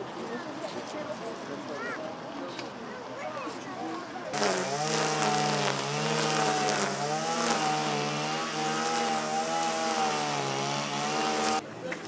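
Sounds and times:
small engine running: 4.4s - 11.6s.

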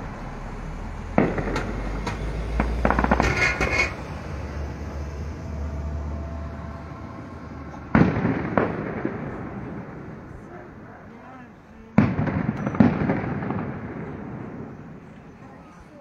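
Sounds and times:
fireworks crackling: 0.0s - 4.1s, 7.5s - 16.0s
loud firework bangs: 1.1s - 4.1s, 7.4s - 11.2s, 11.9s - 15.2s
fireworks shells bursting: 1.2s - 4.1s, 12.0s - 14.8s.

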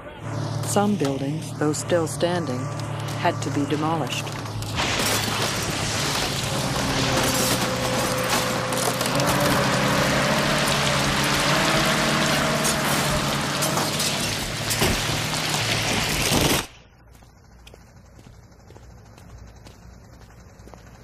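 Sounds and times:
excavator engine running: 0.0s - 21.0s
wood and plaster crunching: 2.7s - 16.8s
debris pouring down: 4.4s - 16.6s.

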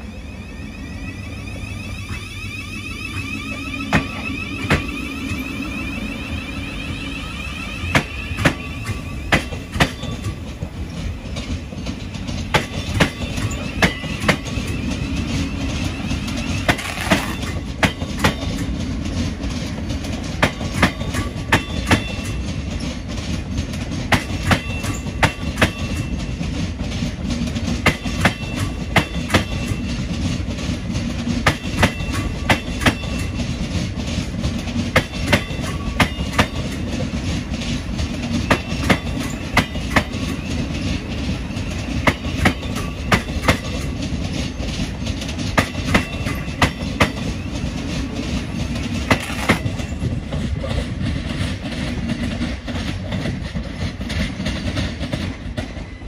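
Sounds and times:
train running gear rumble: 0.0s - 56.0s
faint wheel squeals: 0.1s - 9.3s
train wheels clacking over joints: 7.1s - 56.0s.

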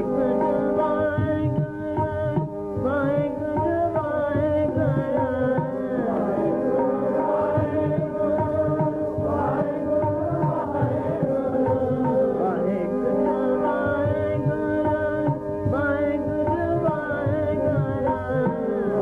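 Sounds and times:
harmonium tones: 0.0s - 19.0s
tabla strokes: 0.0s - 19.0s.

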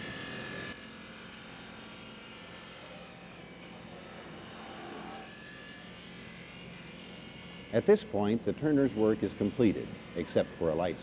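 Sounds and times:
wood lathe humming: 4.3s - 11.0s.

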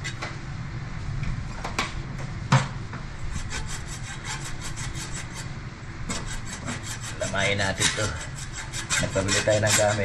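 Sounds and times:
hacksaw sawing metal: 3.3s - 5.4s, 6.1s - 10.0s.

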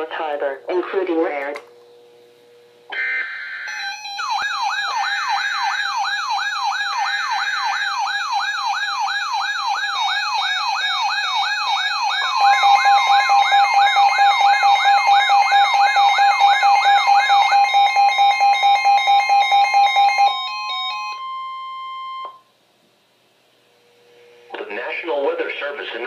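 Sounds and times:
steady warning tone: 2.0s - 22.5s
siren-like sweeping alarm: 2.9s - 22.5s.

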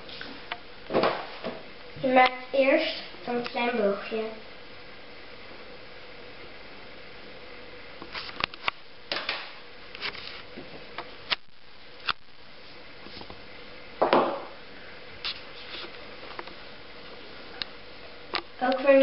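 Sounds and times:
faint steady hum: 0.0s - 19.0s
paper rustle: 10.0s - 10.5s.

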